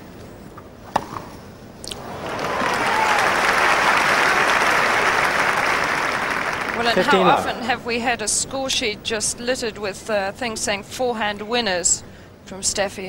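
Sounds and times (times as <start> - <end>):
racket striking tennis ball: 0.9 - 1.3
crowd applause: 2.0 - 7.7.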